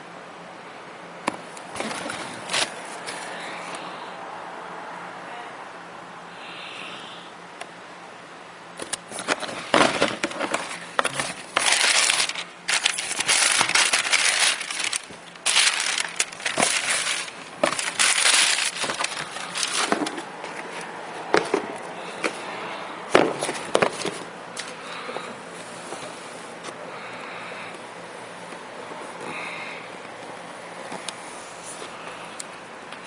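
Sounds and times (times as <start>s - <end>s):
tissue paper rustling: 9.2s - 20.7s.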